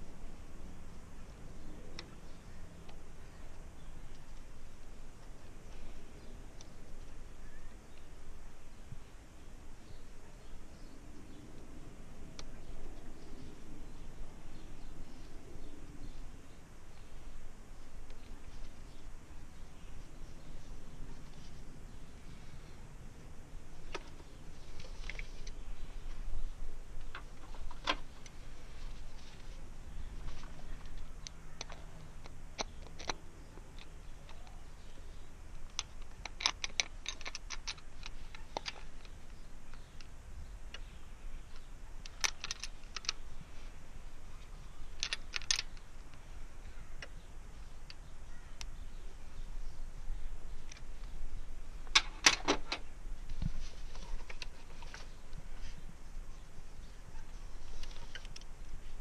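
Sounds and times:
metallic clicks of hand tools: 35.7s - 39.1s, 45.0s - 45.8s.

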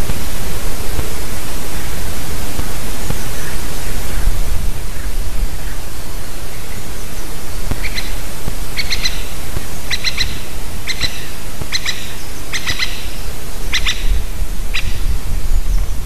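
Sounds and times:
steady hiss: 0.0s - 16.0s
woodpecker calling: 4.9s - 15.8s.

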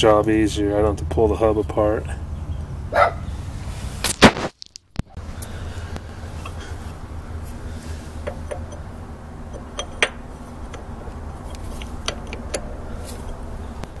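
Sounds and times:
metal punch clinking on hub: 8.2s - 14.0s.

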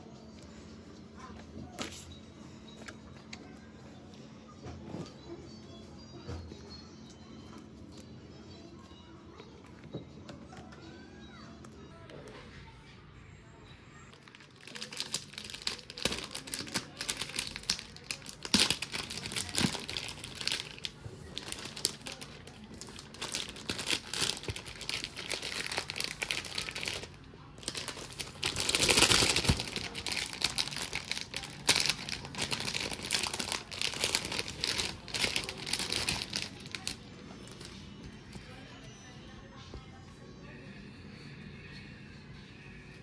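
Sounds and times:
plastic bag crinkling: 14.1s - 37.8s.

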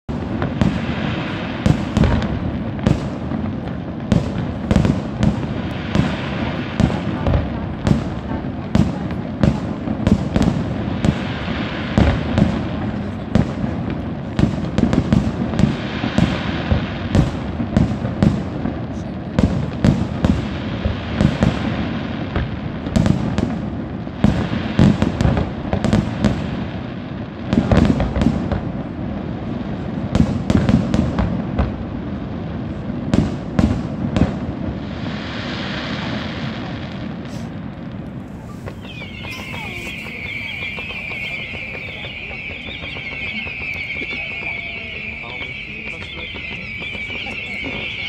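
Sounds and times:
fireworks crackling: 0.1s - 48.0s
firework shells bursting: 37.3s - 48.0s.

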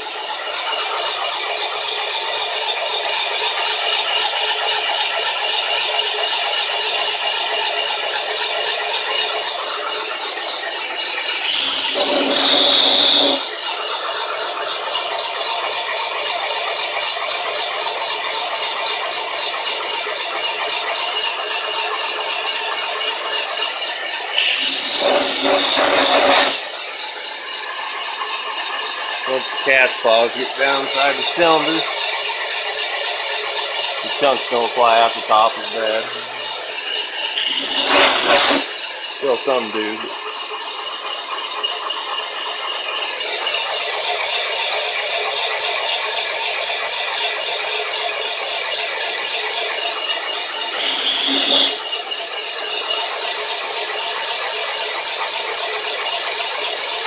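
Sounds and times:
boring machine whine: 0.0s - 57.0s
metal cutting hiss: 11.2s - 13.5s, 24.3s - 41.4s, 50.6s - 51.9s
loud hiss: 11.4s - 13.5s, 24.4s - 26.7s, 37.4s - 40.1s, 50.7s - 51.8s.

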